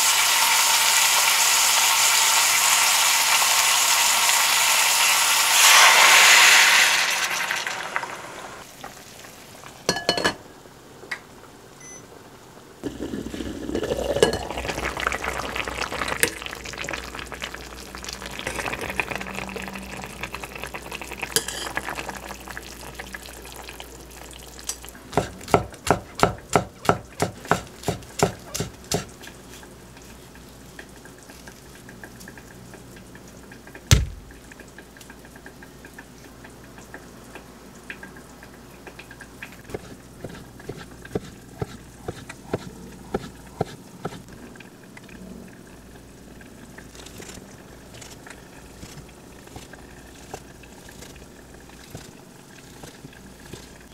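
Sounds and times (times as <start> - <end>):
sauce sizzling in hot pot: 0.0 - 10.2, 12.8 - 42.5, 45.7 - 53.9
braising liquid bubbling: 12.8 - 53.9.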